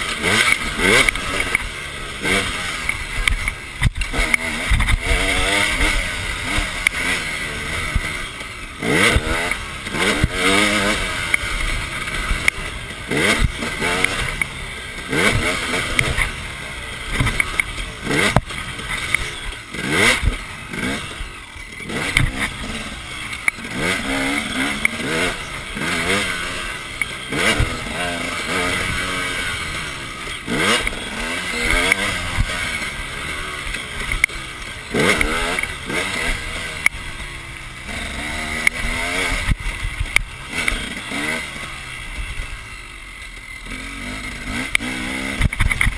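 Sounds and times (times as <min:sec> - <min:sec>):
dirt bike engine revving: 0:00.0 - 0:45.9.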